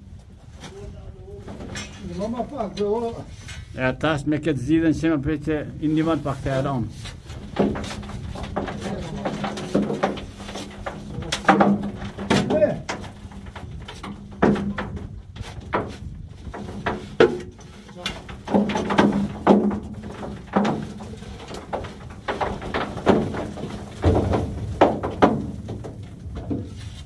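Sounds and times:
ore clattering down steel chute: 6.0s - 26.9s
steel bar knocking and scraping: 7.0s - 27.0s.

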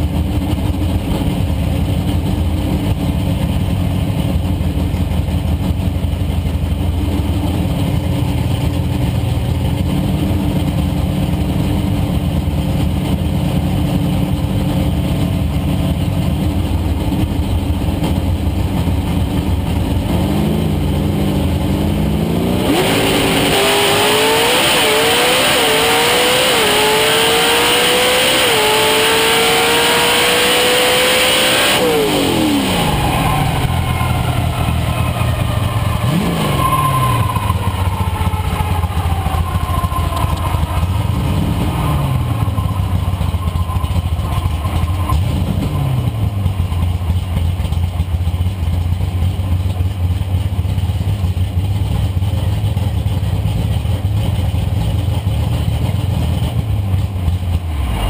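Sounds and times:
race car engine revving: 0.1s - 48.7s.

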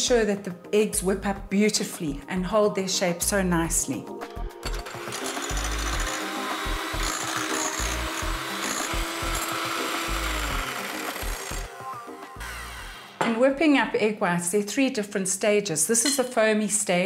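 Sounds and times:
electric hand mixer running: 4.7s - 13.1s.

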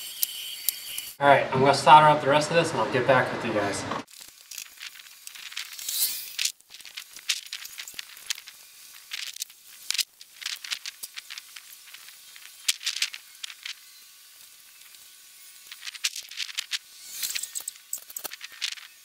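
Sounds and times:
hands rustling wires: 4.1s - 19.0s.

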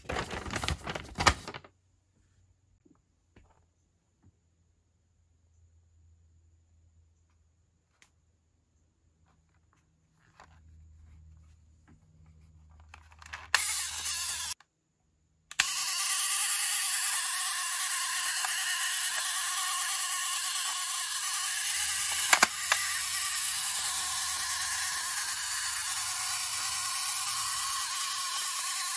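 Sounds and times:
toy mechanism click: 12.9s - 14.6s, 15.5s - 28.9s
clockwork mechanism whirring: 13.2s - 14.6s, 15.5s - 28.9s.

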